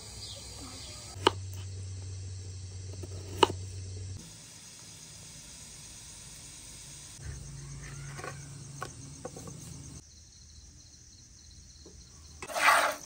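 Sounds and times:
low hum: 0.0s - 7.9s
insects chirring: 0.0s - 13.0s.

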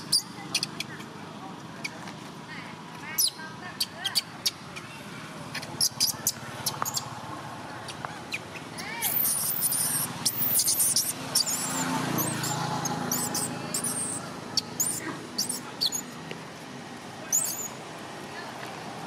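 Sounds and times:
baby monkey screaming squeals: 5.6s - 7.1s, 8.2s - 16.1s, 17.3s - 17.8s.

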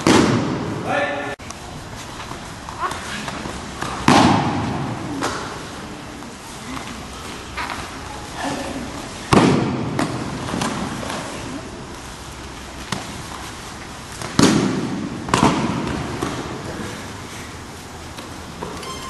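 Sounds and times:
bodies slapping onto mat: 2.2s - 5.6s, 12.8s - 16.6s.

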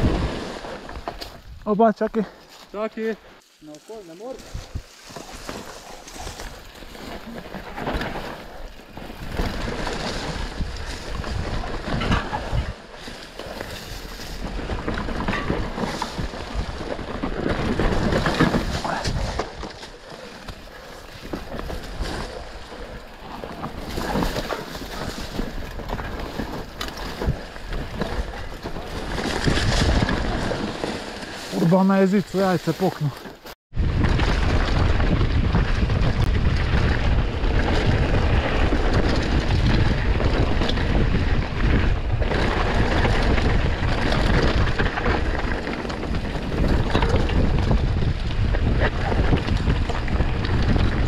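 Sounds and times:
bike rattling over bumps: 0.0s - 2.5s, 4.2s - 51.0s
tyres rolling over dry leaves: 0.0s - 51.0s
wind on microphone: 9.0s - 13.0s, 33.7s - 51.0s.

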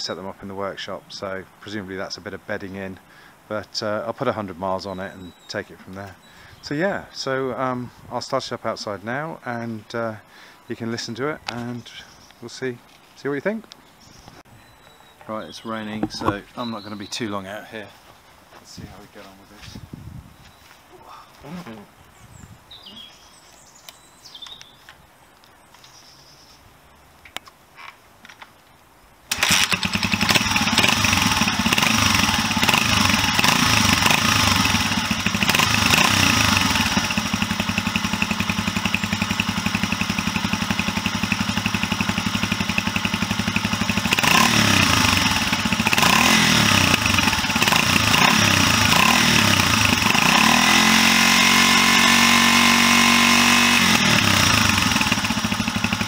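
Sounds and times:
motorcycle engine idling and revving: 16.0s - 16.5s, 29.3s - 56.0s.

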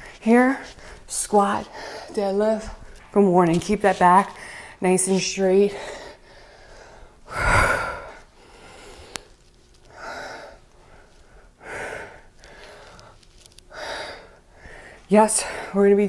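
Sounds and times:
woman breathing hard: 5.7s - 9.3s, 9.9s - 15.8s.

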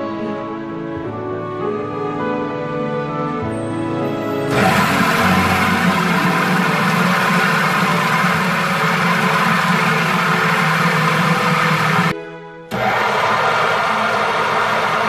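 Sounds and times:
food processor motor running: 4.5s - 12.1s, 12.7s - 15.0s.

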